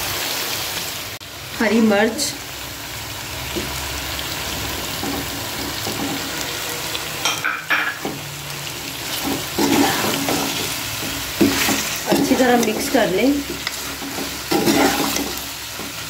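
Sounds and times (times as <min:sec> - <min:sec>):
food sizzling in hot oil: 0:00.0 - 0:16.0
metal spatula scraping a pan: 0:05.0 - 0:16.0.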